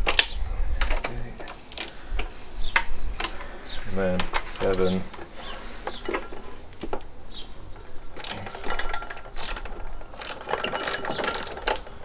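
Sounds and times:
ratchet wrench clicking: 8.2 - 11.9.

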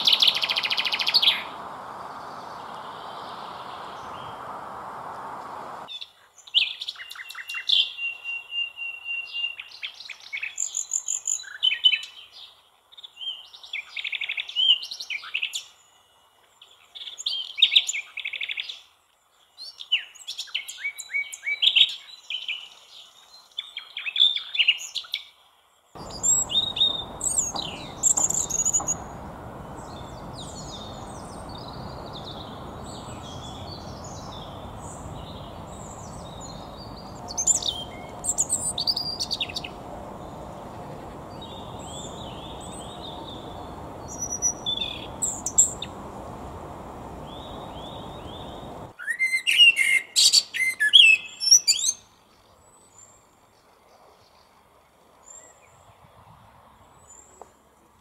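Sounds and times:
steady background noise: 0.0 - 5.9, 26.0 - 48.9
nightingale singing: 0.0 - 6.0, 26.0 - 52.0
robin warbling: 26.0 - 48.9.

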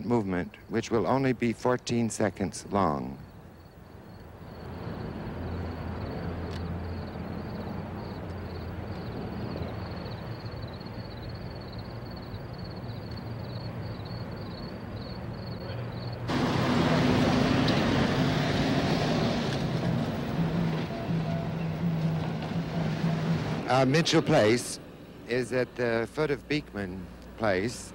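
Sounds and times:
city street traffic: 0.0 - 27.9.

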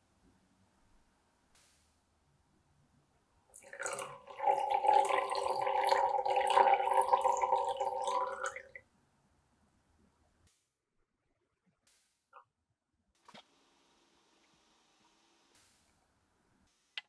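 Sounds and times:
coffee pouring into a glass: 3.6 - 8.8.

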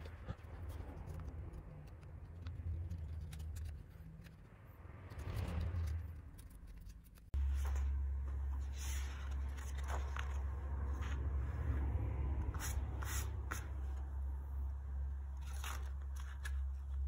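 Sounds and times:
paper rustling and crackling: 1.8 - 4.5, 5.2 - 11.7, 15.3 - 17.0.

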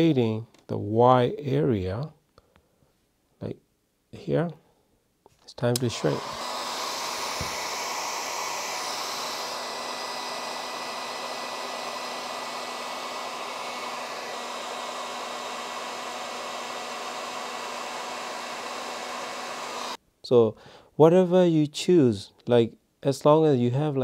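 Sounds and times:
heat gun blowing air: 5.8 - 20.0.

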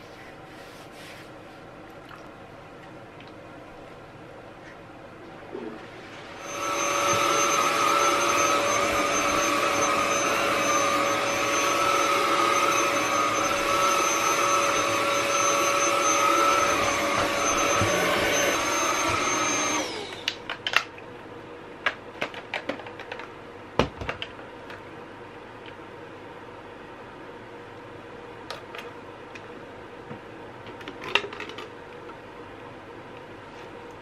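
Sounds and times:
vacuum cleaner running: 5.5 - 20.4.

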